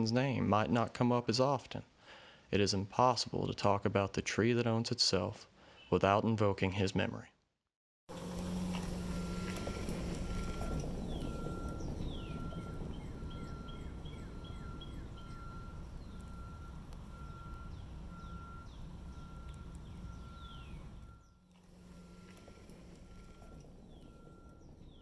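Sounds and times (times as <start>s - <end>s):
low rumble: 8.1s - 25.0s
songbirds calling: 8.2s - 25.0s.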